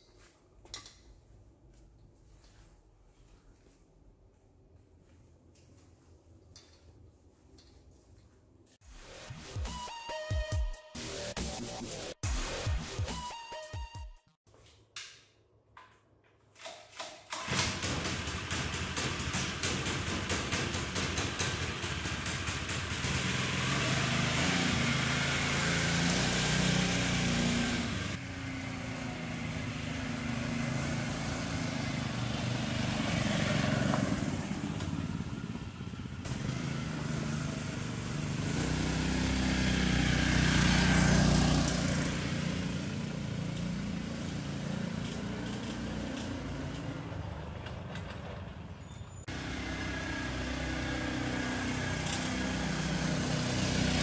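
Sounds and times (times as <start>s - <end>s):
small tractor engine running: 17.4s - 54.0s.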